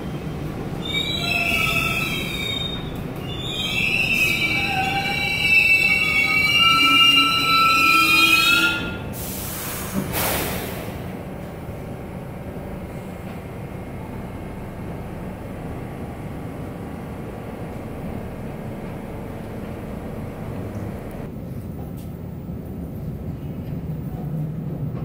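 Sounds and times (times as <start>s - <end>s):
standing train low hum: 0.0s - 25.0s
train brakes squealing: 0.8s - 10.8s
sharp hisses of released air: 9.1s - 11.0s.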